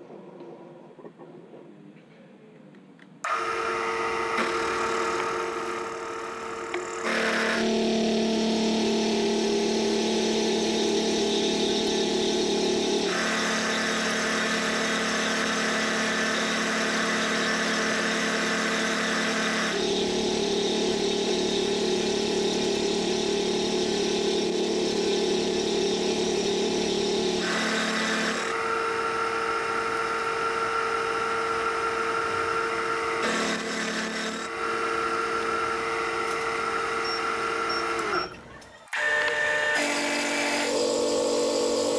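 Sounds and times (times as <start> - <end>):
milling machine cutting metal: 3.3 - 38.4, 39.0 - 41.9.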